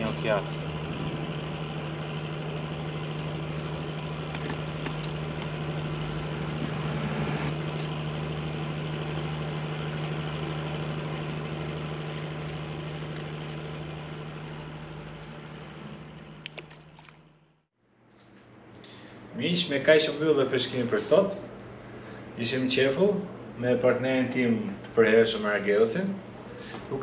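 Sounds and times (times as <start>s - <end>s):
engine idling: 0.0s - 17.6s.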